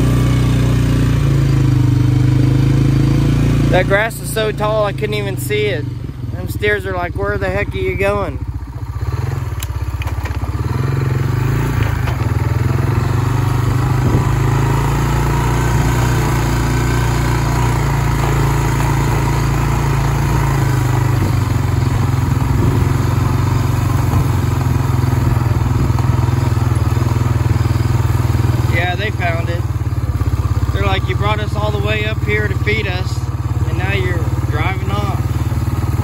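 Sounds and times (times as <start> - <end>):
farm vehicle engine running: 0.0 - 36.0.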